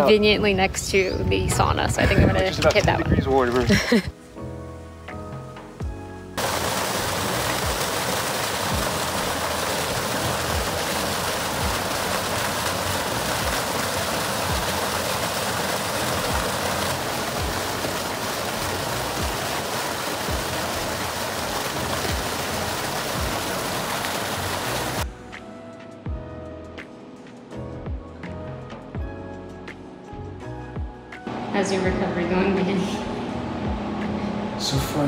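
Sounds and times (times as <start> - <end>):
water pouring into pool: 6.4 - 25.0.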